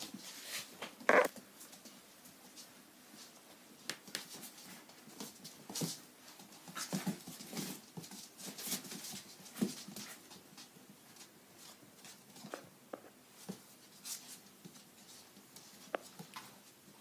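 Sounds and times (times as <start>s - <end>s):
paws scuffling on hard floor: 0.0s - 17.0s.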